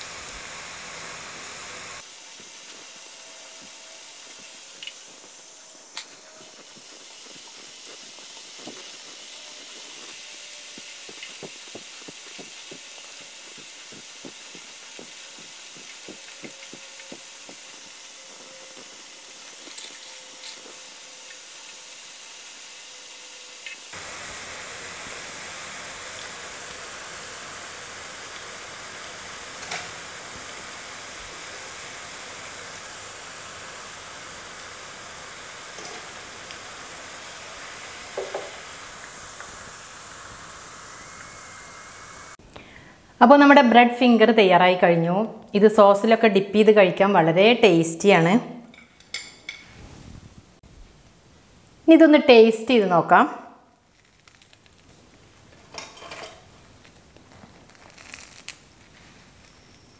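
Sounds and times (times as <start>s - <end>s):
bread sizzling in oil: 0.0s - 42.9s, 53.8s - 59.9s.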